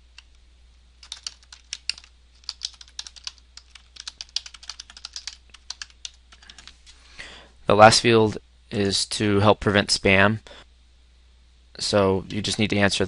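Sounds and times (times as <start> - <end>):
typing on computer keyboard: 1.0 - 6.8.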